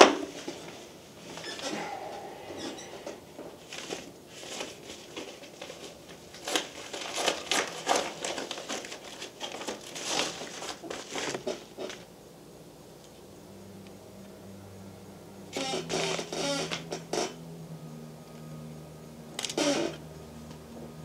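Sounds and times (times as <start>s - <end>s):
paper envelope crinkling: 6.4s - 11.5s.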